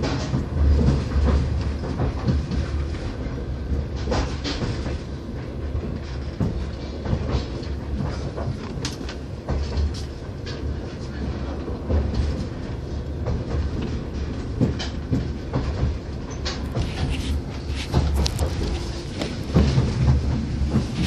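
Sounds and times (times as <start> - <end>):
train carriage rumbling on rails: 0.0 - 21.0
wheels clacking over rail joints: 0.0 - 21.0.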